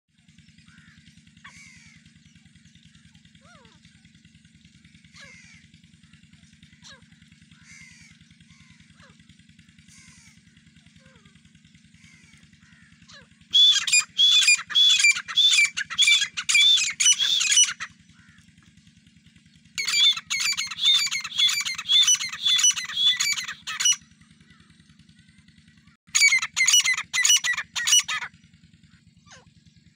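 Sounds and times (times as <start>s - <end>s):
steady low hum: 0.2s - 29.9s
francolins calling shrill notes: 13.5s - 17.9s, 19.8s - 24.0s, 26.1s - 28.3s.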